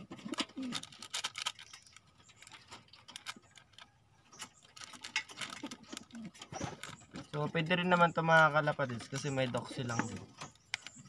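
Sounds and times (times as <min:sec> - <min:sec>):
plastic sachet crinkling and tearing: 0:00.6 - 0:03.8.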